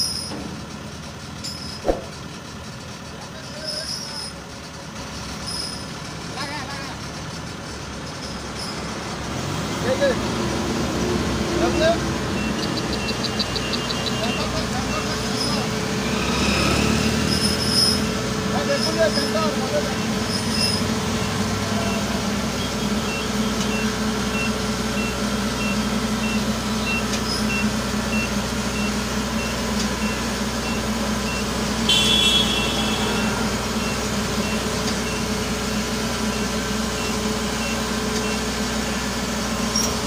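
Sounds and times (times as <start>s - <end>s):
diesel engine running: 0.0s - 40.0s
reversing alarm beeping: 12.4s - 15.2s, 19.8s - 38.5s.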